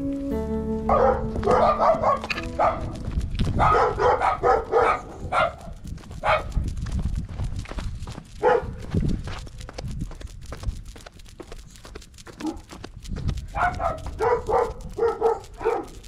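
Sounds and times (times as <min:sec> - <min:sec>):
small dog barking and yipping: 0:00.9 - 0:06.6, 0:08.4 - 0:08.8, 0:12.3 - 0:12.7, 0:13.5 - 0:16.0.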